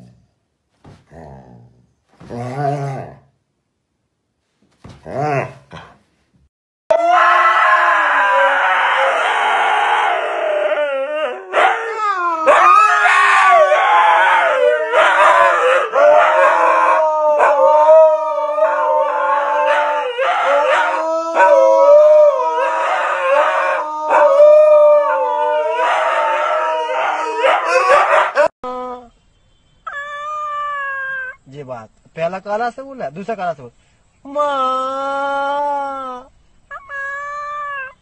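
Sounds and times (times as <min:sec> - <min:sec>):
dogs howling: 0:06.9 - 0:28.5, 0:29.9 - 0:31.4, 0:36.7 - 0:38.0.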